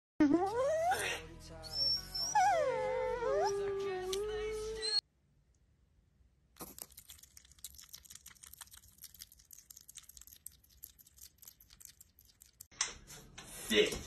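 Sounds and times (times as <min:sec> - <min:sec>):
hedgehog chewing crunchily: 0:06.6 - 0:12.7.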